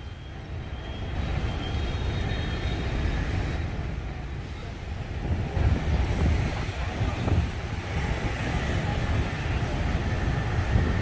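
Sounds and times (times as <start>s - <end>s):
street traffic rumble: 0.0s - 11.0s
wind buffeting microphone: 5.1s - 11.0s.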